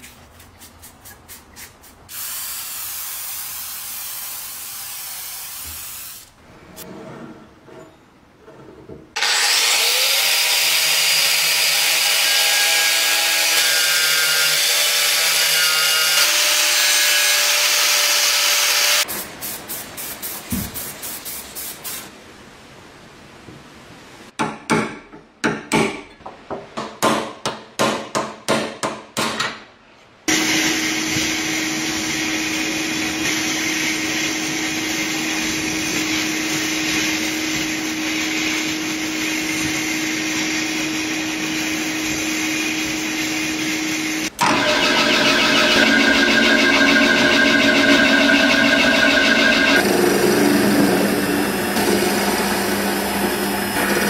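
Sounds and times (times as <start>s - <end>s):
motor humming: 44.4s - 54.0s.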